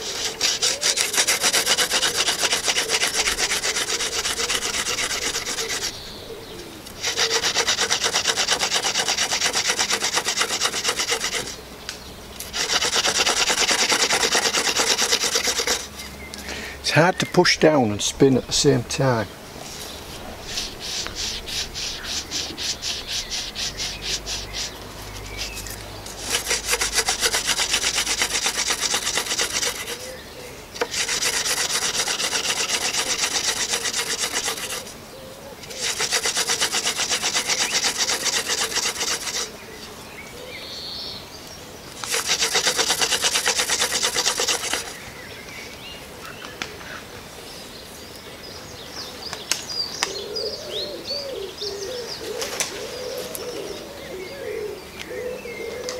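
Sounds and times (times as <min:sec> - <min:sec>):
wood rubbing on wood: 0:00.0 - 0:06.0, 0:06.9 - 0:11.6, 0:12.4 - 0:16.1, 0:16.8 - 0:30.1, 0:30.7 - 0:35.0, 0:35.6 - 0:40.0, 0:41.9 - 0:45.1.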